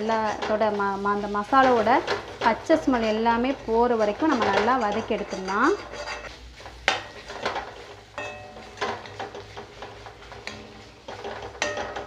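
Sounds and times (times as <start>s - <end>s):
spatula scraping a metal pan: 0.0s - 12.0s
spatula knocking pan side: 6.8s - 12.0s.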